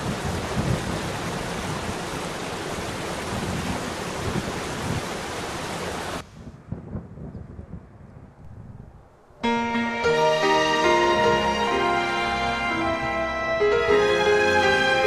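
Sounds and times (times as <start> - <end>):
waterfall rushing: 0.0 - 6.2.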